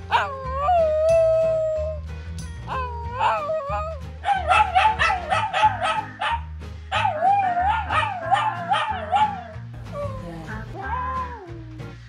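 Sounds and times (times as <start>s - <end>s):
dog howling: 0.0s - 2.0s, 2.7s - 11.6s
music with low beat: 0.0s - 12.0s.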